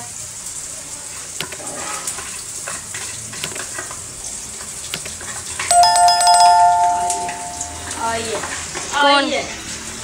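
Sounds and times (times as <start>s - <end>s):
omelette sizzling in a frying pan: 0.0s - 5.7s
electronic doorbell chime: 5.7s - 8.2s.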